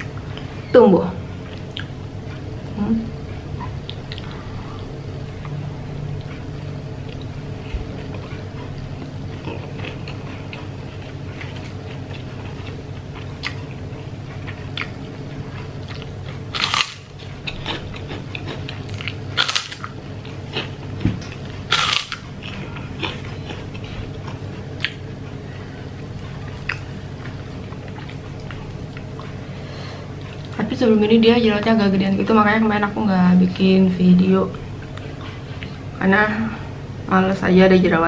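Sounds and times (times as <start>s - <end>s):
chewing and mouth sounds: 1.4s - 2.6s, 3.6s - 5.6s, 6.2s - 30.6s
cracker crunching: 8.0s - 25.4s.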